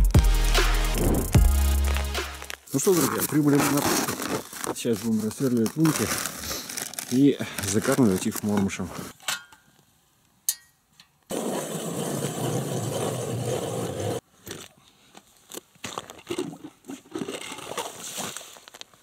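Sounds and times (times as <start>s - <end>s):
crunches and scrapes: 1.9s - 9.2s, 11.3s - 19.0s
ice auger grinding through ice: 11.3s - 14.2s.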